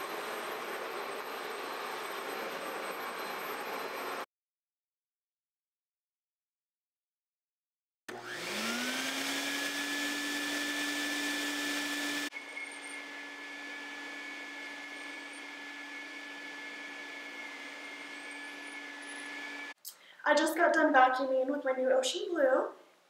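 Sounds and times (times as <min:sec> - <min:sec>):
vacuum motor whine: 0:00.0 - 0:04.2, 0:08.1 - 0:19.8.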